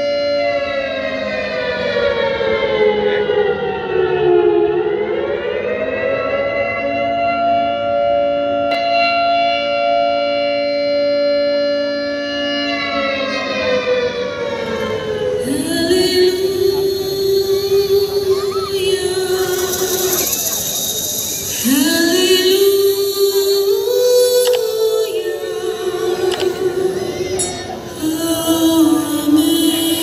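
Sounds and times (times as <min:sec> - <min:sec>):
siren wailing: 0:00.0 - 0:29.6.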